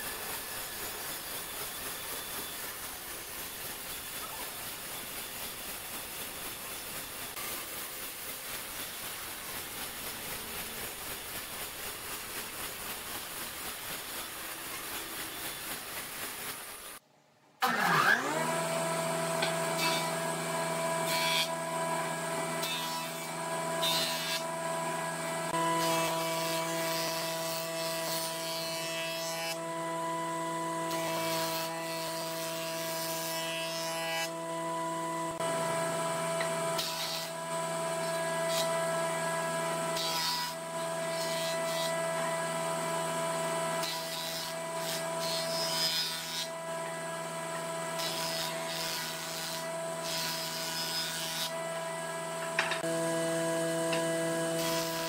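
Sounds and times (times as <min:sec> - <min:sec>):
band saw cutting log: 0:17.6 - 0:55.0
jointer-planer humming: 0:17.6 - 0:55.0
planer cutting log bursts: 0:17.6 - 0:55.0.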